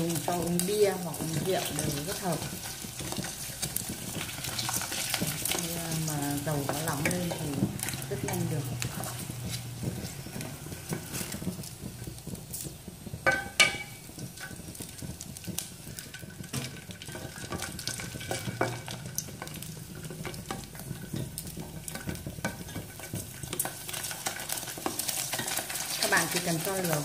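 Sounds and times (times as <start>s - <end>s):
chopsticks stirring: 0.0s - 27.0s
crackers sizzling in hot oil: 0.0s - 27.0s
metallic clank on pot: 13.2s - 14.6s.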